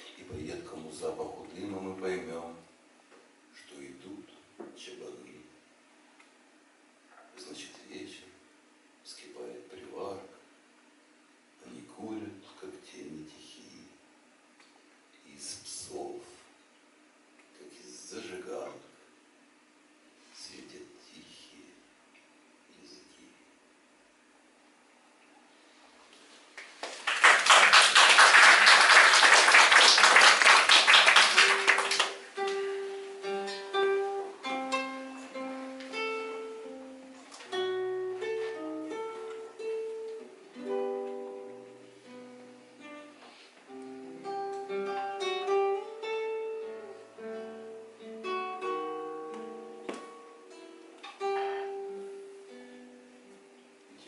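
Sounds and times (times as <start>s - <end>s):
acoustic guitar: 29.4s - 54.0s.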